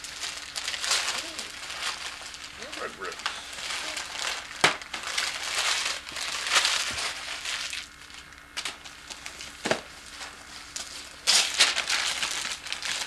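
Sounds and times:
wrapping paper tearing and crinkling: 0.0s - 13.0s.

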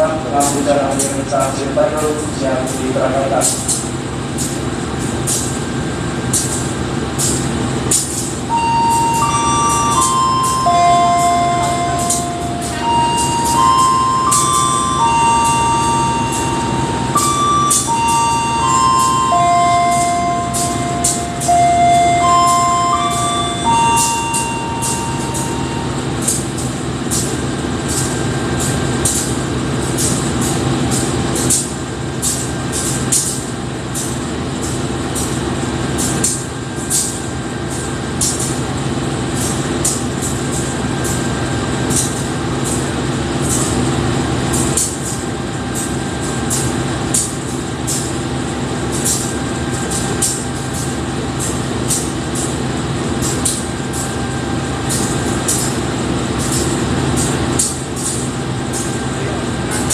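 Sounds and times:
diesel locomotive idling: 0.0s - 59.9s
high-pitched ticks: 8.8s - 27.2s.

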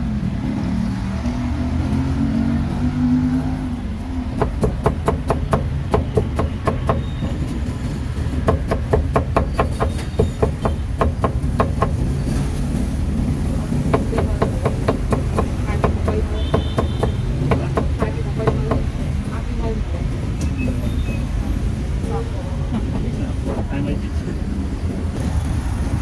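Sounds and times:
cleaver chopping on wooden block: 4.4s - 7.1s, 8.5s - 12.0s, 13.9s - 18.9s.

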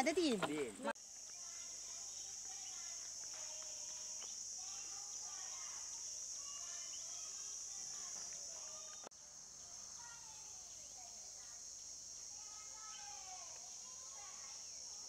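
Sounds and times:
birds chirping: 0.0s - 0.9s
insects droning: 0.0s - 15.0s.

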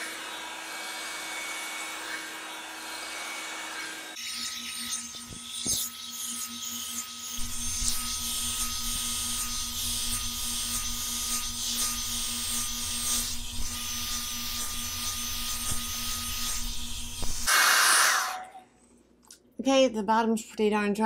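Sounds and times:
hot-air brush dryer running: 0.0s - 4.2s, 7.4s - 18.4s.

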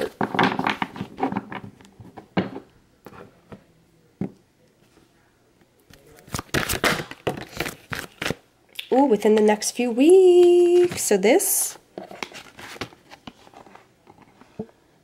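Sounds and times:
cards rustling: 5.9s - 8.4s, 12.0s - 14.4s.

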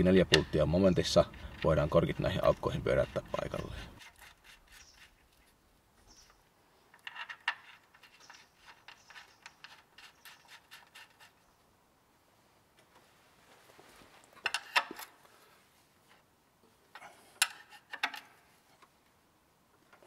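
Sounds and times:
caps scraping and ticking: 0.0s - 11.4s, 14.2s - 15.1s, 16.9s - 19.0s.

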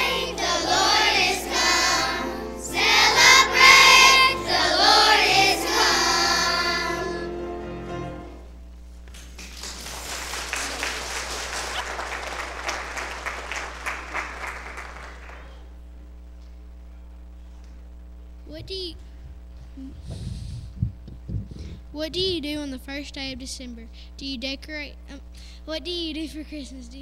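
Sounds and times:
children's choir singing: 0.0s - 7.5s
audience clapping: 9.0s - 15.8s.

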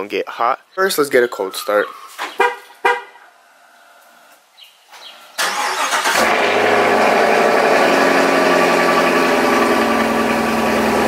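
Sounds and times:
engine starter cranking: 5.4s - 6.8s
car engine idling: 5.4s - 11.0s.

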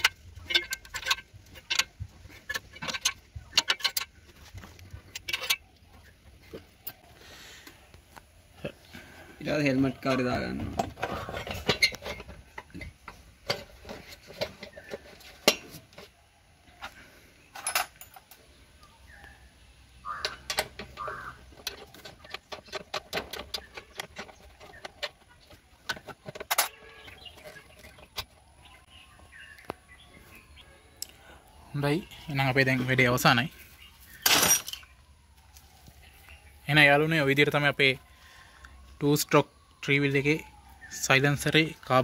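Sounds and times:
spanner clinking on bolts: 0.0s - 5.7s, 17.5s - 18.4s, 20.2s - 28.3s.

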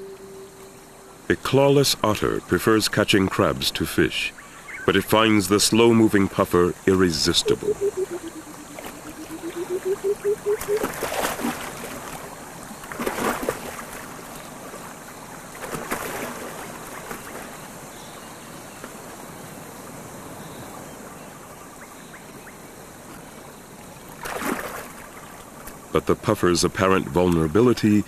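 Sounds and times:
running water: 0.0s - 17.8s
otter splashing in water: 7.5s - 14.9s, 15.5s - 17.6s, 24.2s - 25.8s.

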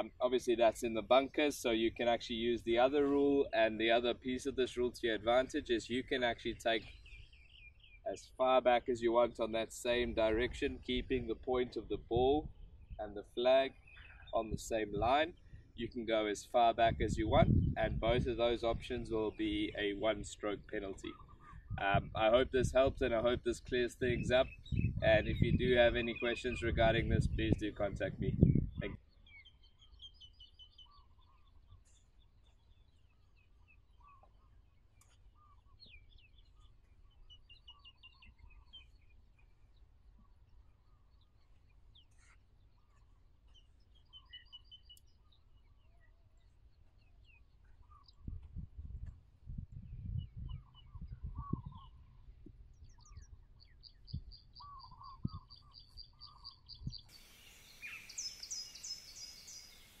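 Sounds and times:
lower whistled bird calls: 6.8s - 8.1s, 21.0s - 21.8s, 24.1s - 26.8s, 28.3s - 46.2s, 46.8s - 48.4s, 50.0s - 60.0s
high repeated bird chirps: 52.8s - 60.0s
hissy background: 57.1s - 60.0s.

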